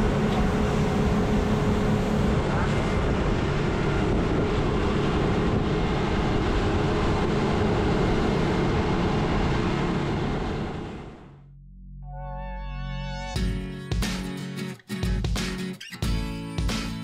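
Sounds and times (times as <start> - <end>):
wind rushing on microphone: 0.0 - 11.1
boat engine drone: 0.0 - 13.0.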